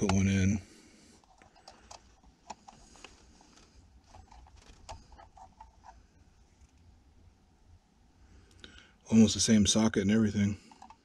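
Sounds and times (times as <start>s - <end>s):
faint clicks and light taps: 1.2s - 6.0s.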